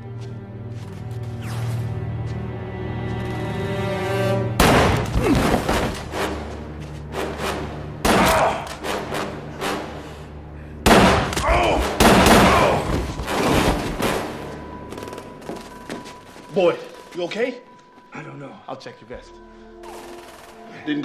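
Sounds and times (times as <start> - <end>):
tense film score: 0.0 - 21.0
pistol shots: 4.6 - 5.2, 10.9 - 14.3.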